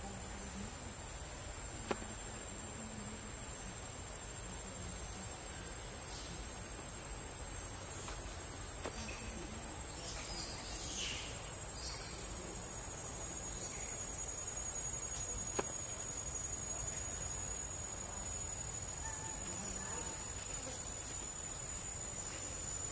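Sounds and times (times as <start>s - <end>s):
faint chirps: 8.9s - 17.6s.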